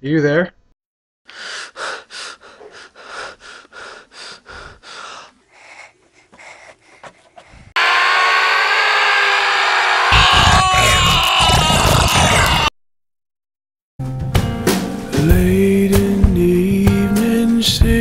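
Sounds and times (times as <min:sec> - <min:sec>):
rapid panting breaths: 0:01.3 - 0:07.8.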